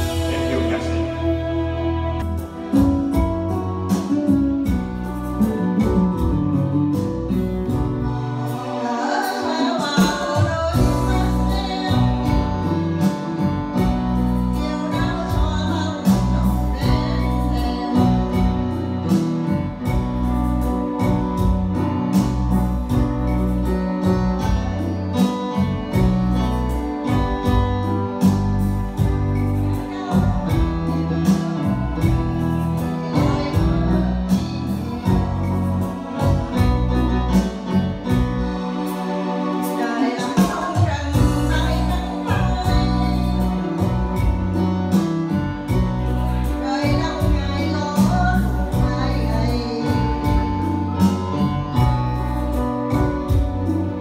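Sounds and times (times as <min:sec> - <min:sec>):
electronic keyboard with steady beat: 0:00.0 - 0:54.0
woman singing into a microphone: 0:08.0 - 0:20.3, 0:27.0 - 0:38.6, 0:39.6 - 0:54.0.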